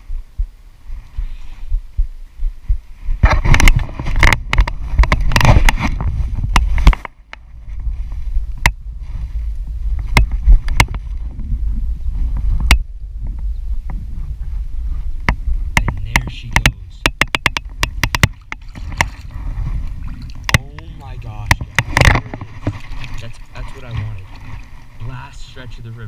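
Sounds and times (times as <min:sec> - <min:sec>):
wind rumbling on microphone: 0:00.0 - 0:26.0
sharp clicks: 0:15.3 - 0:19.1
water sloshing and splashing: 0:17.9 - 0:25.6.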